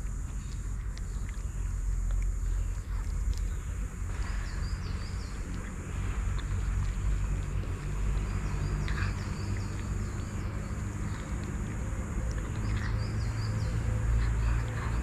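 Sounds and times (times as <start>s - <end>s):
cats crunching dry kibble: 0.0s - 15.0s
low rumble: 0.0s - 15.0s.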